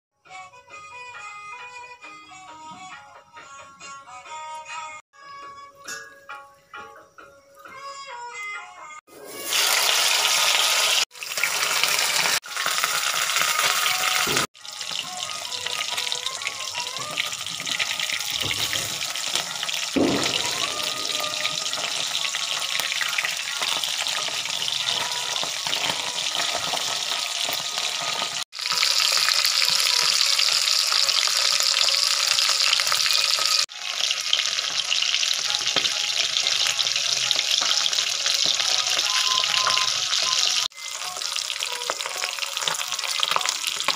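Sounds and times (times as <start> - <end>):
fish sizzling in hot oil: 9.1 - 43.9.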